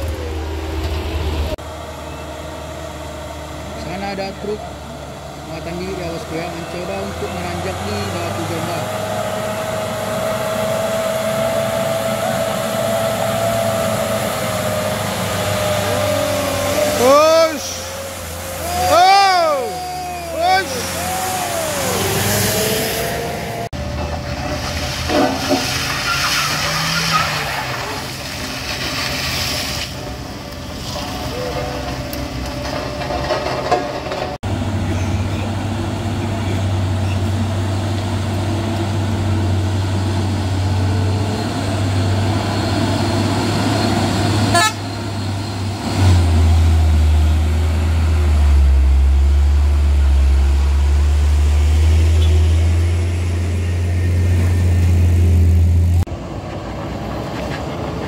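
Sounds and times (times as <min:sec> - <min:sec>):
diesel truck engines straining: 0:00.0 - 0:58.0
voices: 0:03.6 - 0:09.8, 0:12.0 - 0:23.7, 0:30.9 - 0:32.9
horn toots: 0:44.5 - 0:45.0.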